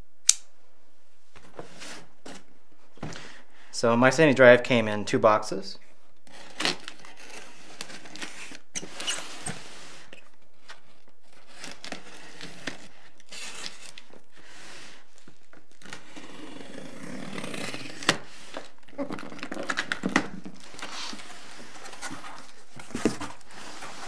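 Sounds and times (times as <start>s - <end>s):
knife slitting packing tape: 11.3s - 14.1s, 15.7s - 18.3s.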